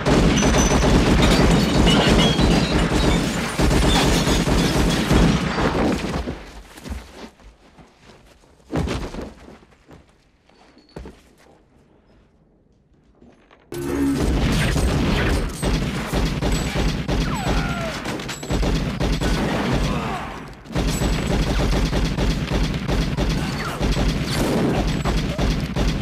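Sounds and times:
pistols firing rapidly: 0.0 - 5.6, 14.4 - 26.0.

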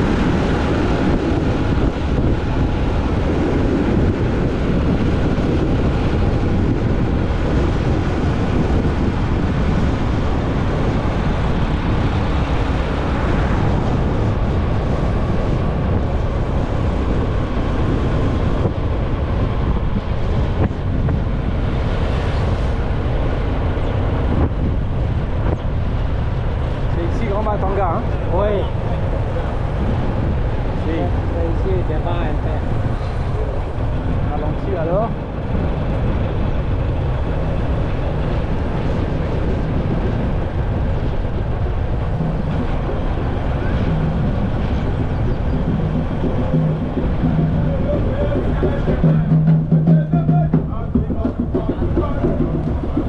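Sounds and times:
wind buffeting microphone: 0.0 - 53.0
motorcycle engine running: 41.8 - 53.0.

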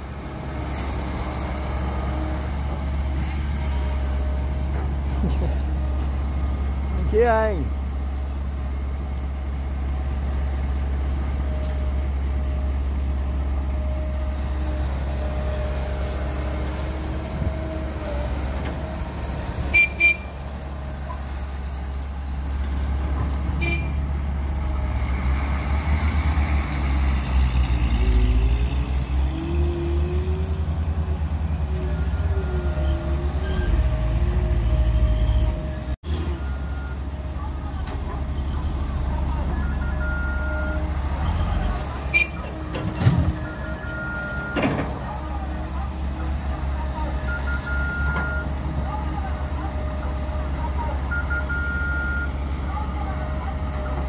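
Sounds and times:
diesel engines rumbling: 0.0 - 54.0
truck engine revving: 12.0 - 36.9, 37.5 - 54.0.

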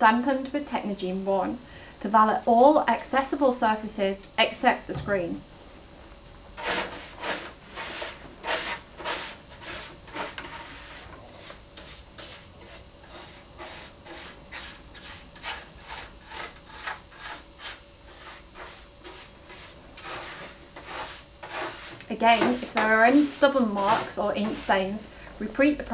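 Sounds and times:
brush scrubbing plastic: 6.6 - 25.0.

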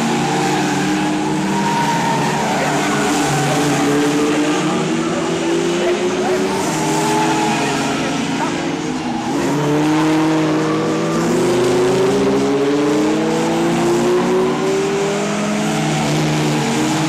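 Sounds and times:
race car engines: 0.0 - 17.0.

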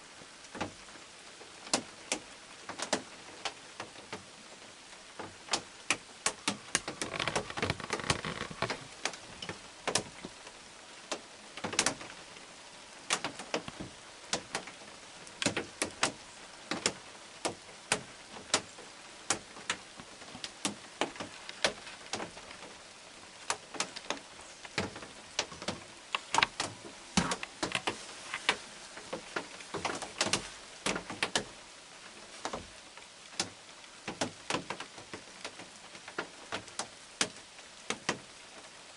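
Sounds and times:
steady rain: 0.0 - 38.9
brief rustle: 6.5 - 10.0.

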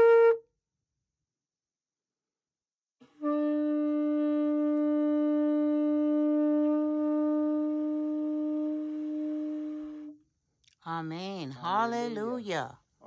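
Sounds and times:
shofar long held note: 0.0 - 0.5, 3.0 - 10.2.

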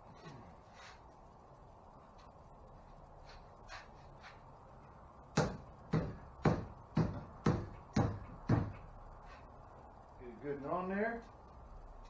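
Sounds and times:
sharp knocks on plastic pipe: 5.4 - 8.9.

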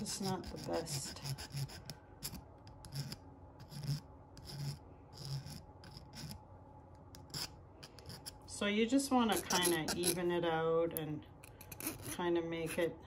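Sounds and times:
hand file rasping on wire: 0.0 - 6.4, 7.2 - 8.5, 9.1 - 10.4, 11.5 - 13.0.

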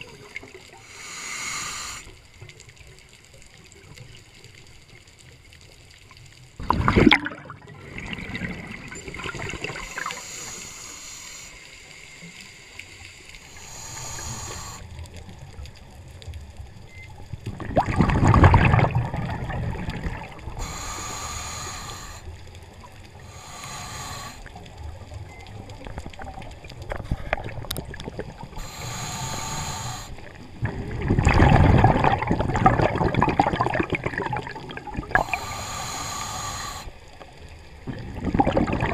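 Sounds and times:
regulator breathing underwater: 0.7 - 2.4, 9.5 - 15.0, 20.4 - 22.6, 23.2 - 24.8, 28.5 - 30.5, 34.1 - 37.2
bubbles gurgling: 6.6 - 10.2, 17.3 - 21.2, 24.6 - 36.0, 37.7 - 38.9.

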